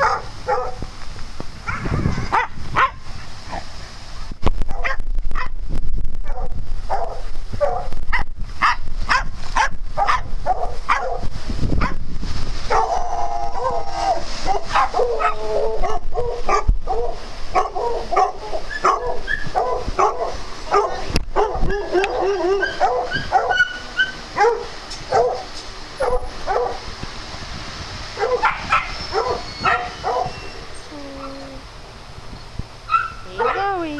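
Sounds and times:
dogs barking: 0:00.0 - 0:00.8, 0:01.6 - 0:03.7, 0:04.7 - 0:05.5, 0:06.2 - 0:12.0, 0:12.7 - 0:13.8, 0:14.4 - 0:26.9, 0:28.2 - 0:30.5, 0:32.9 - 0:33.9
high-pitched yips: 0:28.4 - 0:30.6.

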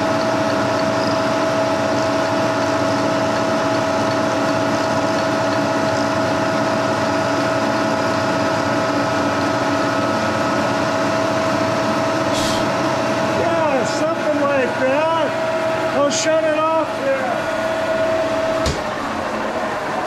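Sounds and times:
milling machine whine: 0:00.0 - 0:20.0.

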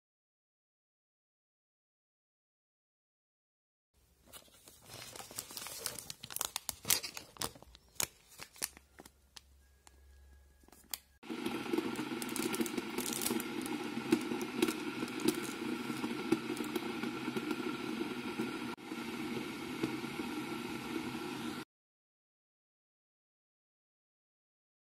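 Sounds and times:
cardboard and foil crinkling: 0:04.2 - 0:09.5, 0:11.8 - 0:16.8
paper sachet tearing: 0:04.3 - 0:09.5, 0:10.8 - 0:16.8
electric kettle heating water: 0:11.2 - 0:21.6.

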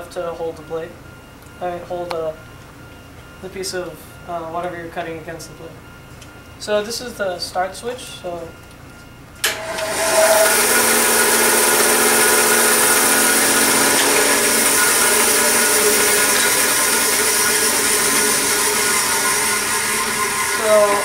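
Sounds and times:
bandsaw running: 0:09.5 - 0:21.0.

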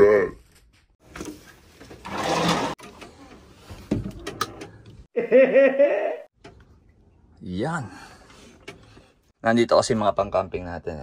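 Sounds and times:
sliding door opening: 0:01.8 - 0:04.8
man laughing: 0:05.1 - 0:06.3.

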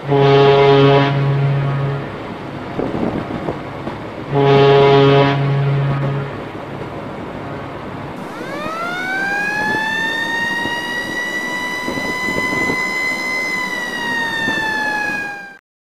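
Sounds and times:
steady background noise: 0:01.1 - 0:15.6
long high whistle tone: 0:08.2 - 0:15.6.

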